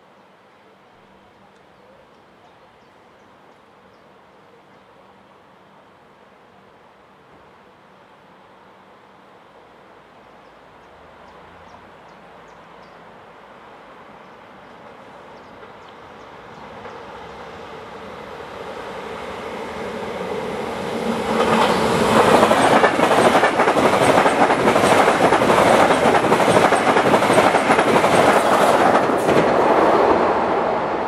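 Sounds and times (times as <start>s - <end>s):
passenger train passing: 11.3s - 31.0s
wheels clicking on rails: 21.3s - 29.6s.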